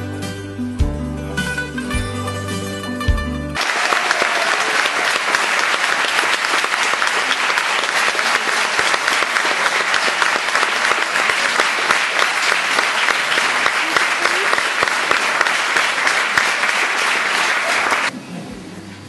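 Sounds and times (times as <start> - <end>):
plucked-string music: 0.0 - 3.6
people applauding: 3.6 - 18.1.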